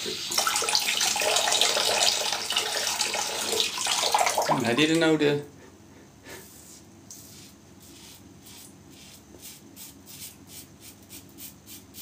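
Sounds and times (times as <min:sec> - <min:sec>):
razor scraping through stubble: 0:07.3 - 0:11.8.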